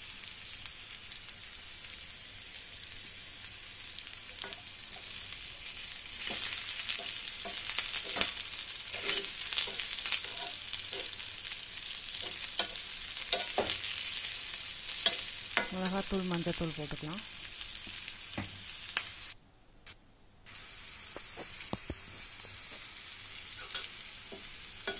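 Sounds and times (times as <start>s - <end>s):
vegetables sizzling in hot oil: 0.0s - 19.4s, 20.5s - 24.9s
steel spoon scraping a pan: 4.3s - 16.0s, 23.4s - 24.9s.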